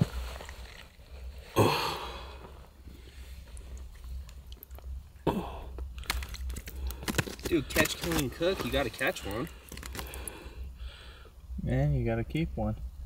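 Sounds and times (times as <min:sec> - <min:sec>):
wet handling of fish: 0:00.0 - 0:01.4, 0:02.9 - 0:05.0, 0:05.8 - 0:10.6.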